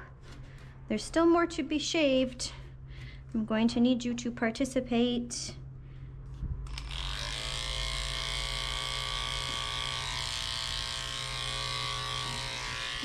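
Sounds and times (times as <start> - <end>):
electric clippers buzzing: 6.7 - 13.0.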